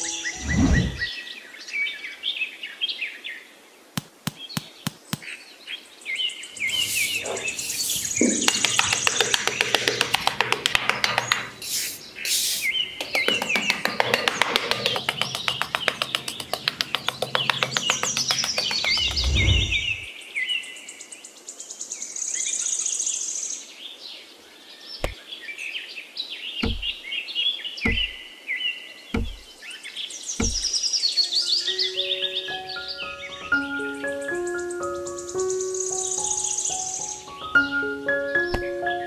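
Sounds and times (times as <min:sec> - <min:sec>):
birds chirping: 0:00.0 - 0:02.3, 0:04.0 - 0:20.8, 0:24.8 - 0:39.0
fast ticking trill: 0:13.0 - 0:19.2
low thud: 0:26.6 - 0:27.0, 0:27.9 - 0:28.2, 0:29.2 - 0:29.5, 0:30.4 - 0:30.7
soft low knocks: 0:26.6 - 0:27.0, 0:27.9 - 0:28.2, 0:29.2 - 0:29.5, 0:30.4 - 0:30.7.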